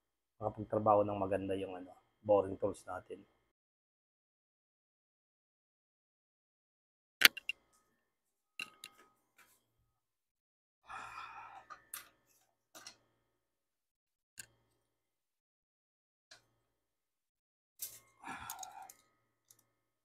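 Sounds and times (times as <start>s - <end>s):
tools clicking and knocking: 7.2s - 7.5s, 8.6s - 9.1s.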